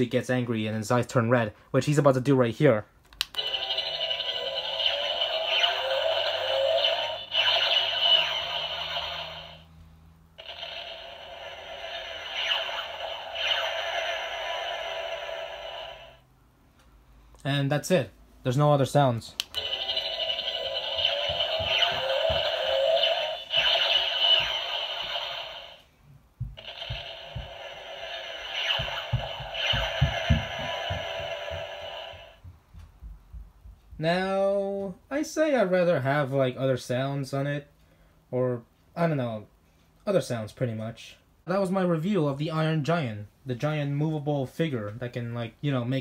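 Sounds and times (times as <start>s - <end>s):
tinny electronic toy sound effect: 3.3s - 9.7s, 10.4s - 16.2s, 19.4s - 25.9s, 26.6s - 32.4s
regular low thuds: 26.0s - 27.8s, 28.6s - 34.2s.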